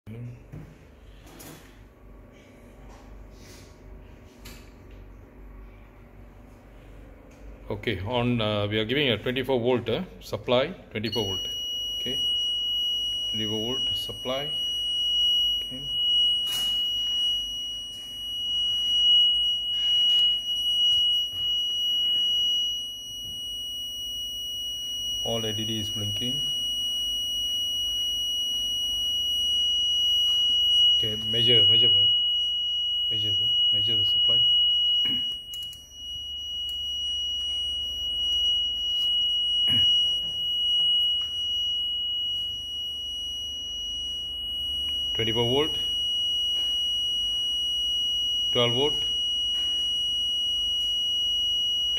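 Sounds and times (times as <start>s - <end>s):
high-pitched electronic buzzer tone: 11.1s - 51.9s.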